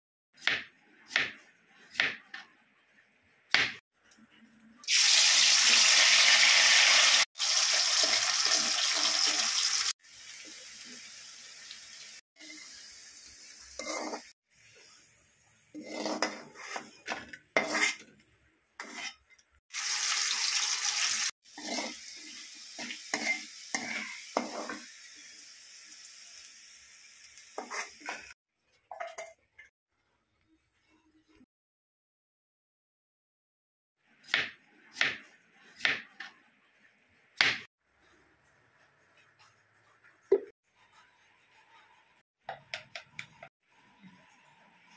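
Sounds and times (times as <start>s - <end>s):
potato slices sizzling in oil: 4.8s - 18.0s, 18.8s - 28.4s
metal spoon scraping pan: 13.8s - 14.4s, 15.7s - 18.2s, 18.8s - 19.5s, 21.5s - 22.2s, 22.8s - 24.8s.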